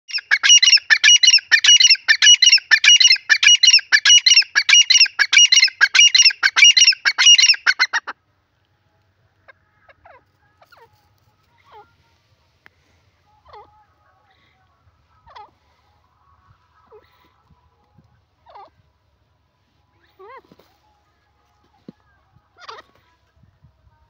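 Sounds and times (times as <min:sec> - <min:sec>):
bird calling shrill phrases: 0:00.1 - 0:08.1.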